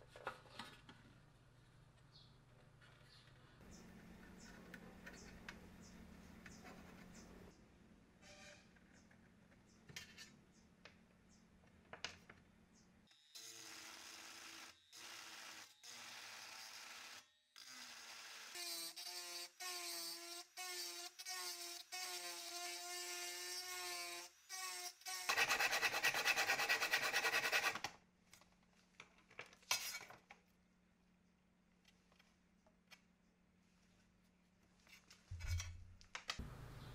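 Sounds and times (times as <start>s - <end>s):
rotary tool grinding metal: 13.4s - 27.8s.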